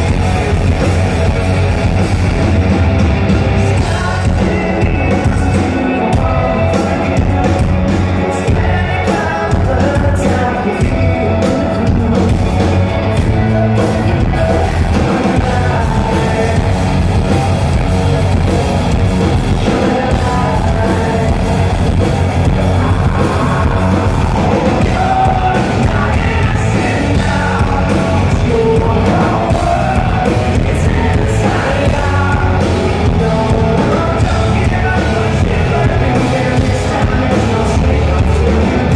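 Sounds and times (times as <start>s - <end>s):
hard rock band playing live: 0.0s - 38.9s
lead vocal singing: 0.0s - 38.9s.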